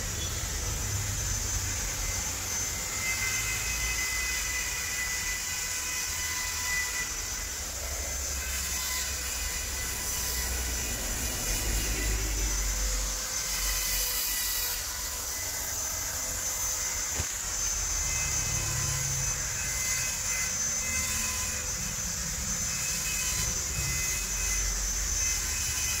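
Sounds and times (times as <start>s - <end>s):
machinery hiss and rumble: 9.2s - 14.1s.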